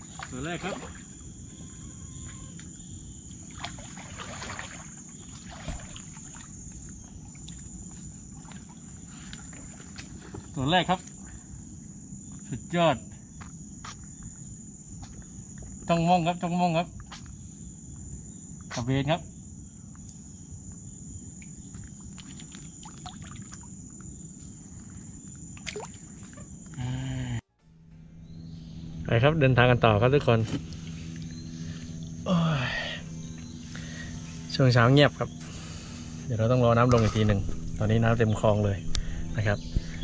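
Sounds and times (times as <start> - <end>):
water splashing from wading: 0.0 - 1.2, 3.4 - 7.7, 22.1 - 23.7, 25.6 - 26.2
low water wash: 3.4 - 6.6
high-pitched whine: 26.0 - 40.0.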